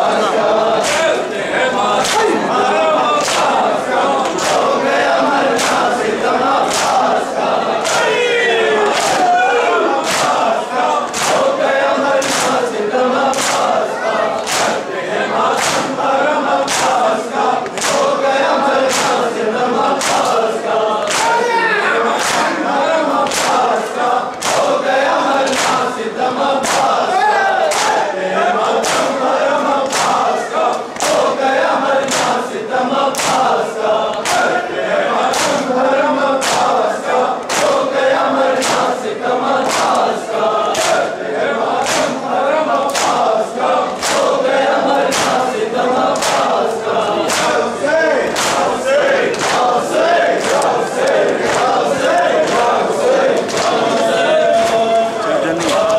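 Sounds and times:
crowd of men chanting: 0.0s - 55.9s
chest-beating slaps: 0.8s - 1.2s, 5.5s - 5.9s, 6.6s - 7.1s, 10.0s - 10.5s, 11.1s - 11.5s, 12.2s - 12.6s, 13.3s - 13.7s, 14.4s - 14.8s, 15.6s - 16.0s, 16.6s - 18.1s, 18.8s - 19.3s, 20.0s - 20.4s, 21.0s - 21.4s, 22.2s - 22.6s, 23.2s - 23.6s, 24.4s - 24.7s, 25.5s - 25.8s, 26.6s - 27.0s, 27.7s - 28.0s, 28.8s - 29.2s, 29.8s - 30.3s, 32.0s - 32.4s, 33.1s - 34.5s, 35.3s - 35.7s, 36.4s - 37.8s, 38.6s - 39.0s, 39.6s - 40.1s, 40.7s - 41.0s, 41.8s - 42.2s, 42.8s - 43.3s, 44.0s - 44.4s, 45.0s - 45.5s, 46.2s - 46.6s, 47.2s - 47.6s, 48.3s - 49.8s, 50.4s - 52.8s.

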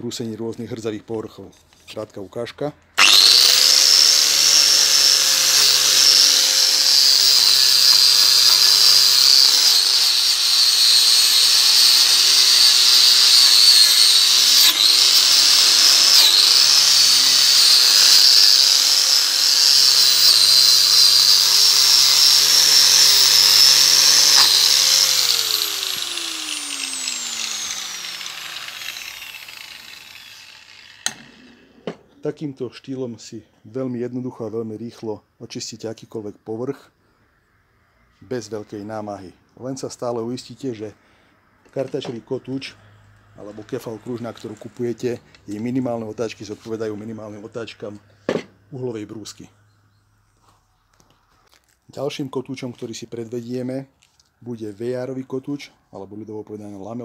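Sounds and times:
angle grinder wire brush whine: 3.0s - 32.0s
grinder spinning down: 3.0s - 32.0s.

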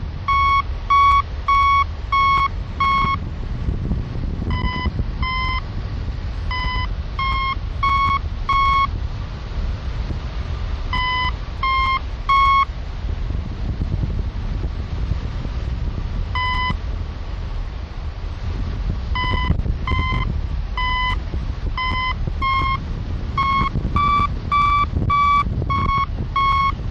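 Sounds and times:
wind rushing over microphone: 0.0s - 26.9s
variometer beeping: 0.2s - 3.2s, 4.4s - 5.7s, 6.4s - 9.0s, 10.9s - 12.7s, 16.3s - 16.8s, 19.1s - 26.9s.

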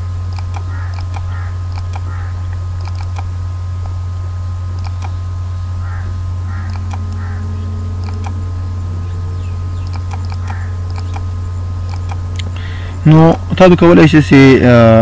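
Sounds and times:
faint high whine: 0.0s - 15.0s
low electrical hum: 0.0s - 15.0s
computer mouse clicking: 0.3s - 2.2s, 2.8s - 3.3s, 4.8s - 5.2s, 6.6s - 7.3s, 8.0s - 8.4s, 9.8s - 11.3s, 11.9s - 12.5s.

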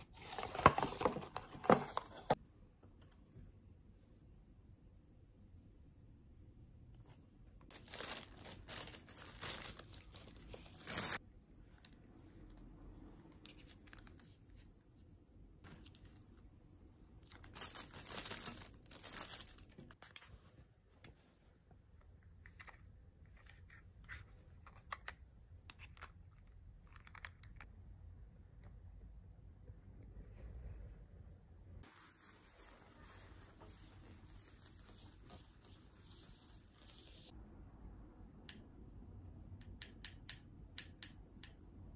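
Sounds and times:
plastic packaging tearing and crinkling: 17.2s - 19.8s.

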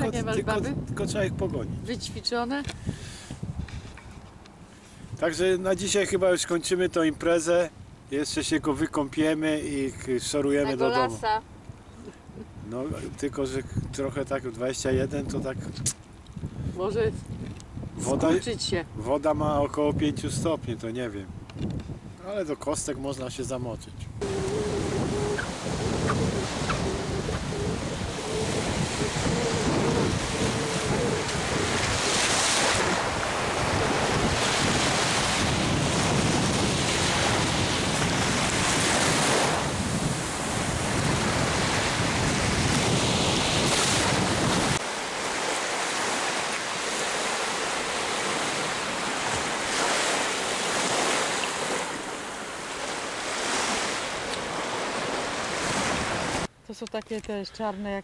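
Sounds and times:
wind buffeting microphone: 0.0s - 4.4s, 10.6s - 22.2s, 23.9s - 56.5s
waves breaking on sandy shore: 10.0s - 11.4s, 24.2s - 56.5s.

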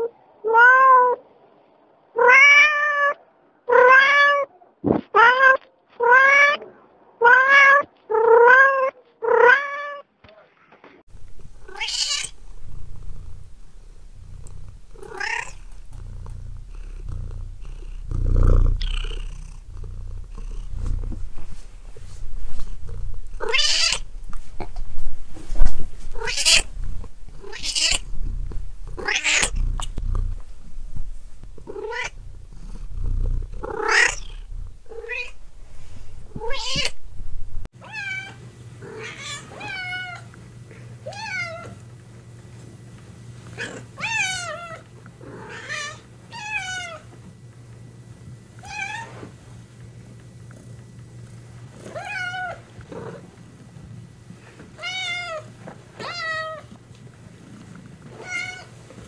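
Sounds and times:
cats meowing: 2.2s - 4.5s, 11.2s - 24.9s, 26.0s - 35.4s, 36.3s - 37.0s
low rumble: 11.1s - 37.7s
faint steady hum: 11.1s - 59.0s.

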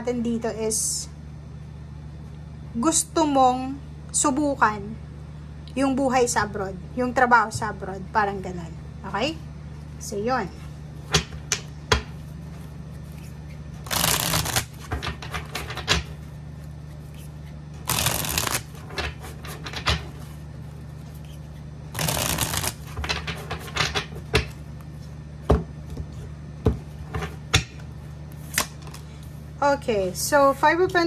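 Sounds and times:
cards riffle-shuffled: 12.6s - 15.9s, 16.8s - 20.4s, 21.0s - 24.1s
cards tapping and clicking: 13.9s - 16.1s, 17.9s - 20.0s, 22.0s - 24.6s.

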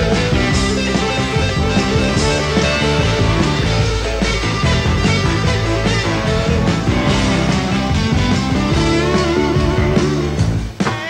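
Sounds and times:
electric guitar: 0.0s - 11.0s
rock and roll band playing: 0.0s - 11.0s.

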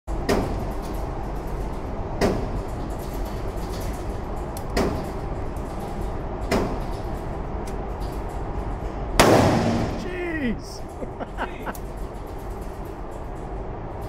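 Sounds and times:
gunshots with echo: 9.2s - 10.0s.

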